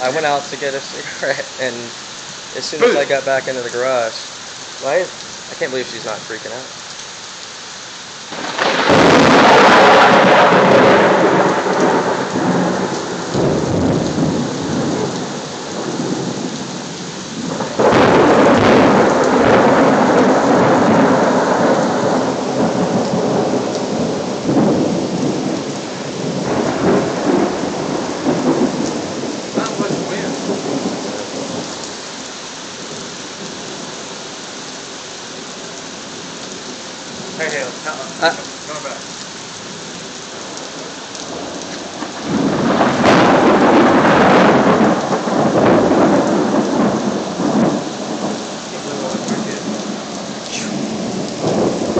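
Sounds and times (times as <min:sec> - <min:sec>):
heavy rain: 0:00.0 - 0:51.9
thunder rumbling: 0:08.3 - 0:16.8, 0:17.4 - 0:31.9, 0:40.4 - 0:51.9.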